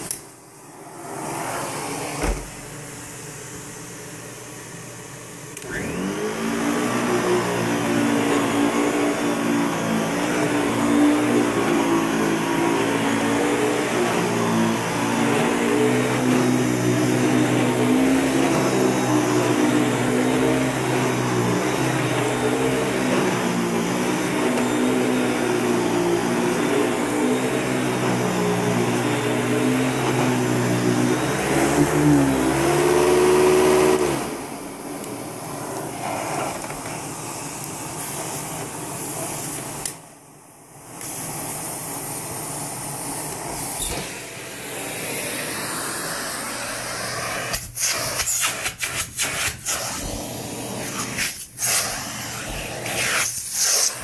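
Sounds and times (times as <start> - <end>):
vacuum motor hum: 0.0 - 39.0, 49.8 - 54.0
suction air hiss through hose: 45.4 - 50.1, 50.8 - 54.0.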